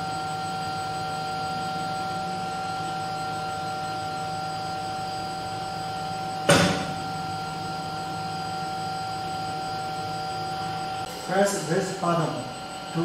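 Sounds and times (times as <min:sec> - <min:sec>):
machine electrical hum: 0:00.0 - 0:13.0
whining tones: 0:00.0 - 0:13.0
sharp knock: 0:06.5 - 0:07.0.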